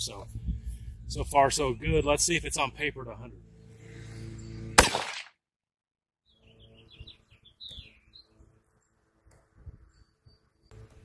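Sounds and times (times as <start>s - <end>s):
birds chirping: 0.0s - 5.1s, 6.2s - 11.0s
rifle shot: 4.8s - 5.3s.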